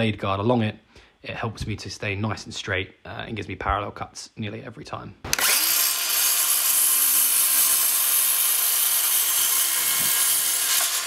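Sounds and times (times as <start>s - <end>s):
circular saw cutting wood: 5.3s - 11.0s.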